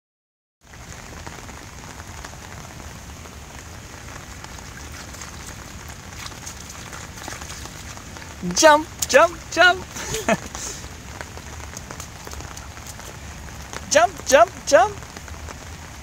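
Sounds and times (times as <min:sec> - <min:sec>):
rain on wet pavement: 0:00.6 - 0:16.0
hands patting puddle water: 0:04.3 - 0:09.2, 0:09.9 - 0:14.3.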